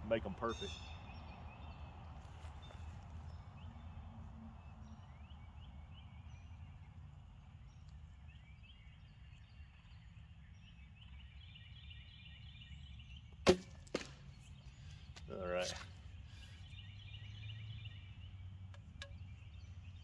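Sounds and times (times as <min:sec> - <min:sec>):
arrow knock: 0:13.4 - 0:14.3.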